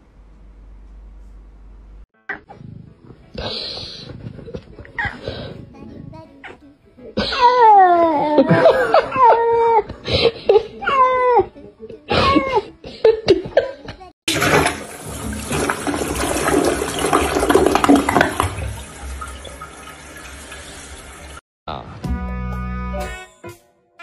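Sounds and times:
toilet flushing: 14.3s - 21.4s.

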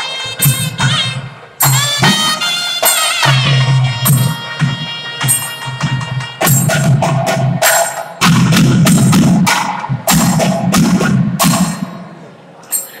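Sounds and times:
drums playing fast strokes: 1.6s - 12.0s.

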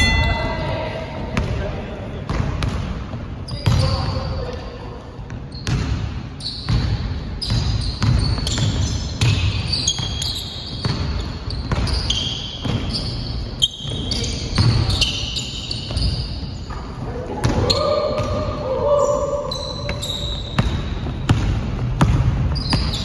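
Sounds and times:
sneakers squeaking on floor: 0.0s - 23.0s
basketball bouncing on hardwood: 20.6s - 23.0s.

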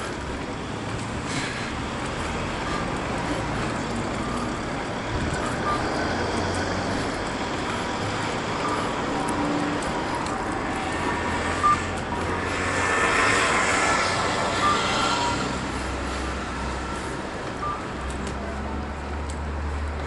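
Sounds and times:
city road traffic: 0.0s - 20.0s
vehicle passing: 0.0s - 20.0s
brief beeps: 14.6s - 15.5s, 17.6s - 17.9s.

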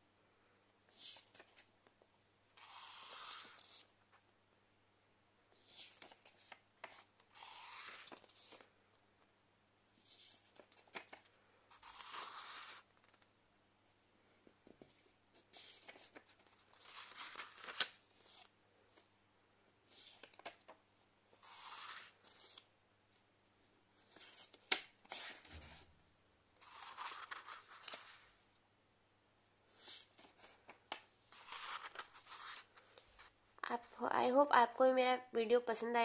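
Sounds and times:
paper pages rustling: 0.9s - 1.7s, 2.6s - 4.4s, 5.5s - 8.8s, 10.0s - 13.3s, 14.6s - 19.1s, 19.9s - 20.8s, 21.4s - 22.7s, 24.0s - 25.8s, 26.6s - 28.3s, 29.7s - 33.4s.

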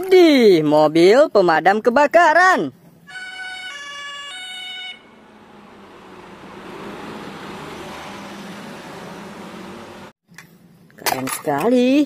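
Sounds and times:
two-tone fire engine siren: 3.1s - 7.8s
truck engine driving past: 4.4s - 10.2s.

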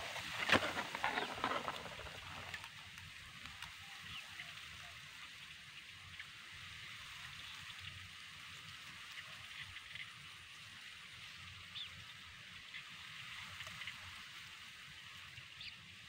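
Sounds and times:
grass rustling: 0.0s - 3.0s
faint steady hiss: 0.0s - 16.0s.

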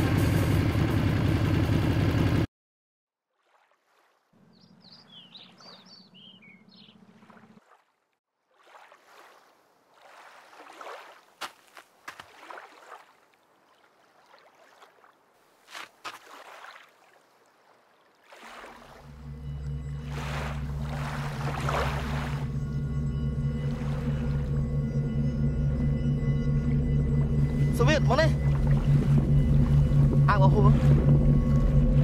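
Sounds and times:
motorcycle engine idling: 0.0s - 2.5s
water lapping against rocky shore: 3.4s - 4.3s, 7.0s - 19.3s, 20.0s - 22.6s
birds chirping: 4.4s - 7.4s.

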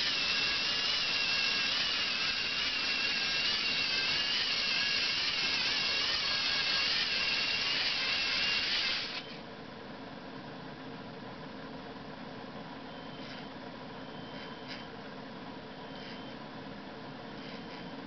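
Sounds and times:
electric motors whining: 0.0s - 9.3s.

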